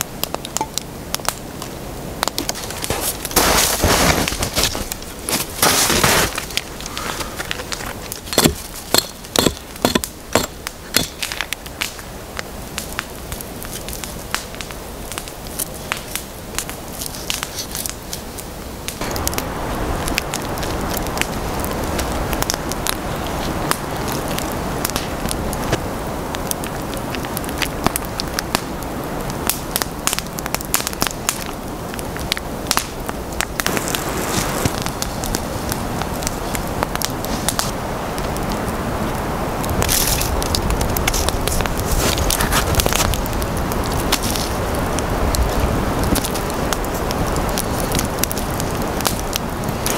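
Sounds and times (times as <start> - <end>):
campfire crackling and popping: 0.0 - 49.9
low rush of burning: 0.0 - 49.9
rustling: 2.4 - 10.1
hatchet chopping wood: 8.3 - 11.3.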